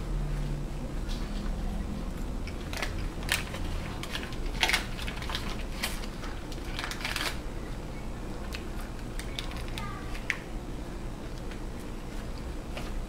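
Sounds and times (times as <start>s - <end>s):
low steady hum: 0.0s - 13.0s
paper wrapper crinkling: 2.5s - 7.4s.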